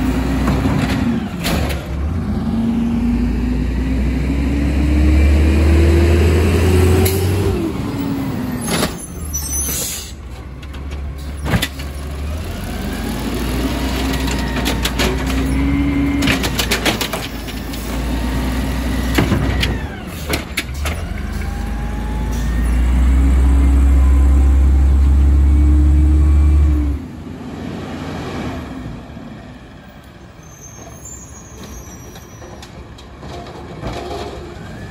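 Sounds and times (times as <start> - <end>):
diesel engine revving: 0.0 - 9.4, 11.1 - 29.9
trash being dumped clatter: 0.4 - 2.0, 32.4 - 34.8.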